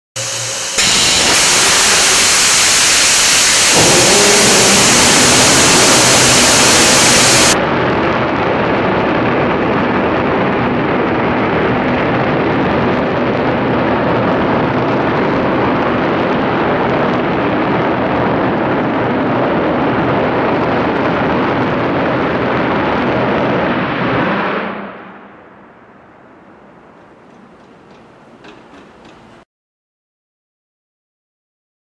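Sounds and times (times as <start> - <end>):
sharp rocket hiss: 0.2 - 7.6
rocket engine roaring: 0.2 - 27.3.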